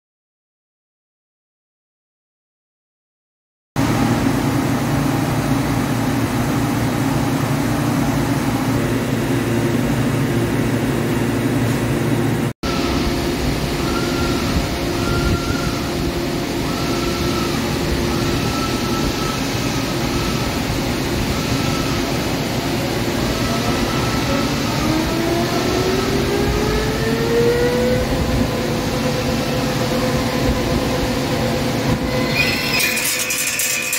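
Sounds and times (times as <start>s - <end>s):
lathe machine hum: 3.8s - 33.9s
higher machine tone: 12.6s - 33.9s.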